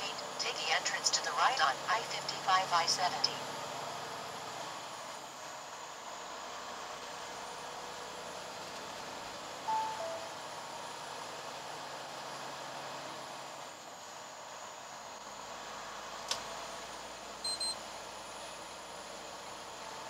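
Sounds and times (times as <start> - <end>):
truck road and engine noise: 0.0 - 20.0
two-note electronic chime: 9.7 - 10.5.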